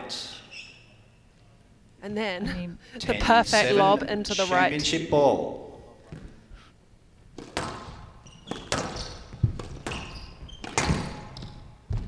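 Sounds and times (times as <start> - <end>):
shoe squeaks: 0.4 - 1.2, 7.8 - 11.8
squash ball hitting rackets and walls: 7.2 - 12.0.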